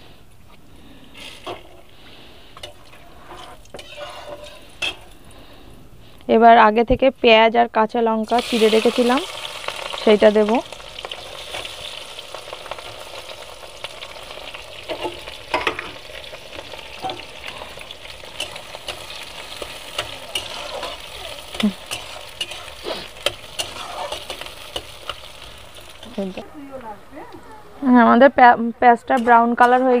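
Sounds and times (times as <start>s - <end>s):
onions sizzling in hot oil: 1.1s - 5.4s, 7.9s - 26.8s
spatula scraping a metal pan: 2.6s - 5.2s, 17.0s - 25.4s.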